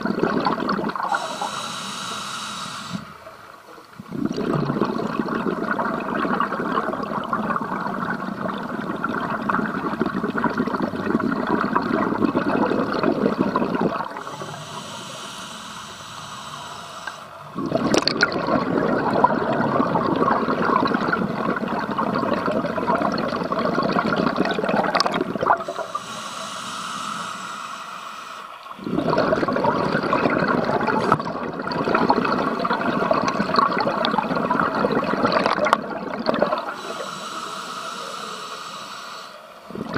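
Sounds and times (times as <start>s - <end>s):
bubbling exhaled air underwater: 0.0s - 39.9s
hissing inhalation through regulator: 1.0s - 3.3s, 13.9s - 17.6s, 25.4s - 29.2s, 36.5s - 39.9s.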